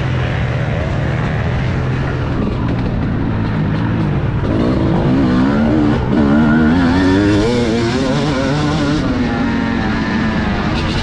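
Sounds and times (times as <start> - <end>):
motocross bike engine accelerating: 0.0 - 11.0.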